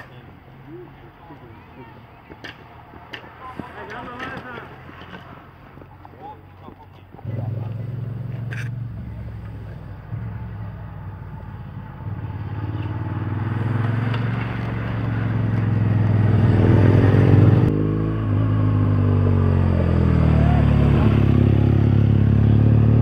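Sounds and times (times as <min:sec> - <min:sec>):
motorcycle engine approaching slowly: 0:00.0 - 0:23.0.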